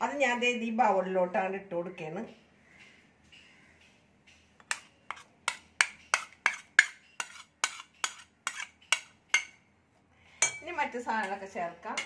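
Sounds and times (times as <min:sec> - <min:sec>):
spoon clinking on ceramic plate: 0:10.4 - 0:10.7.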